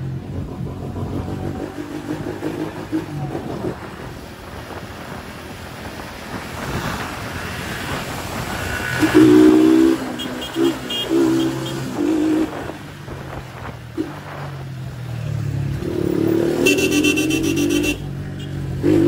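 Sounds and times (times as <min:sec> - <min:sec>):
wind and road noise: 0:00.0 - 0:19.0
vehicle horn honking: 0:09.1 - 0:11.9, 0:16.6 - 0:18.6.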